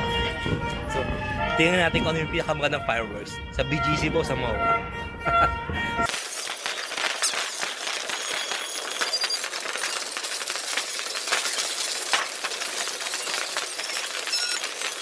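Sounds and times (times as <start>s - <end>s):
high-pitched fireworks crackle: 6.0s - 15.0s.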